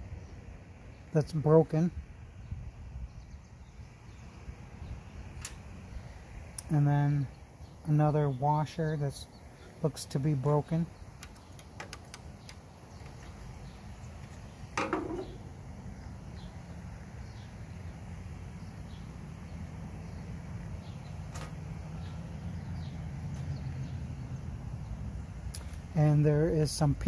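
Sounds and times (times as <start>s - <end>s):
steady low hum: 0.0s - 27.0s
sharp knock of metal parts: 14.8s - 15.4s.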